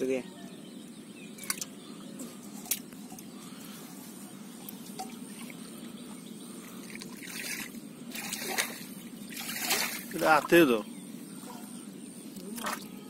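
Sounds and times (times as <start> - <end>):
muddy water splashing and pouring: 6.7 - 10.7, 12.4 - 12.9.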